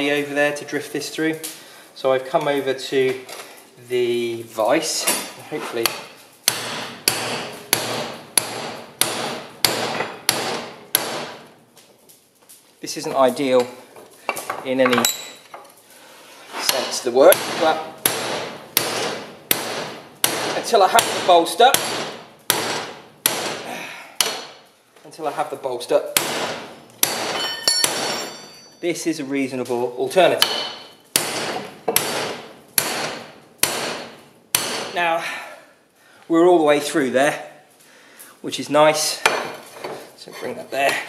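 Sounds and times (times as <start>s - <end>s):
hammer striking hot metal: 5.0s - 11.5s, 16.7s - 24.6s, 26.2s - 28.9s, 30.3s - 35.0s
hammer striking metal drift: 26.2s - 28.7s.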